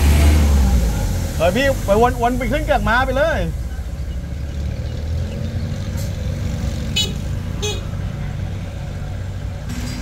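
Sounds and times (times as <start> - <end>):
diesel engine rumbling: 0.0 - 10.0.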